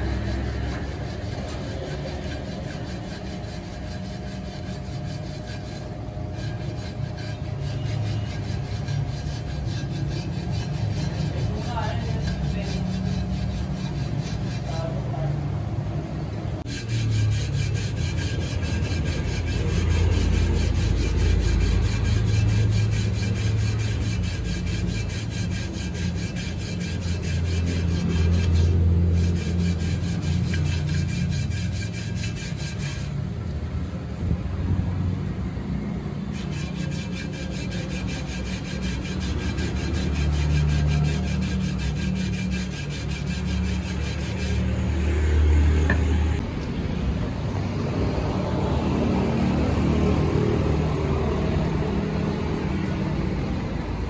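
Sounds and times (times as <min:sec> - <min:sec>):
abrasive paper rasping on a rim: 0:00.0 - 0:15.3, 0:16.6 - 0:33.2, 0:36.3 - 0:45.0
lathe motor hum: 0:16.6 - 0:33.2, 0:36.3 - 0:46.4.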